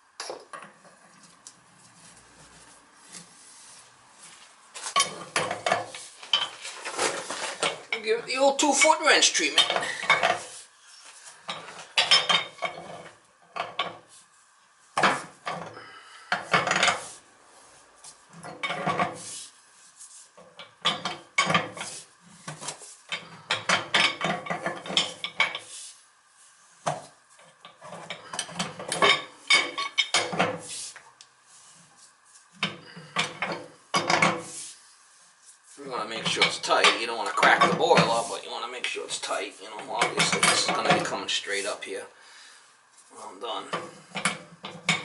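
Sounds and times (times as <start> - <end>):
pipe wrench clanking and scraping: 4.8 - 8.1, 8.8 - 10.5, 11.4 - 14.1, 15.0 - 17.1, 18.4 - 19.3, 20.4 - 25.7, 26.9 - 30.7, 32.6 - 34.6, 36.1 - 38.4, 39.8 - 41.2, 43.7 - 45.0.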